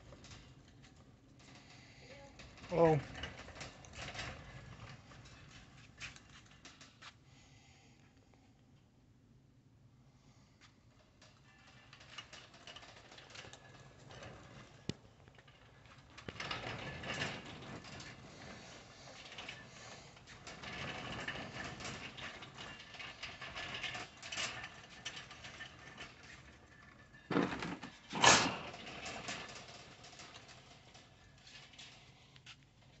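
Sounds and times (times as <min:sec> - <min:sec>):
shopping cart rattling: 0:02.1 - 0:06.8, 0:11.4 - 0:32.1.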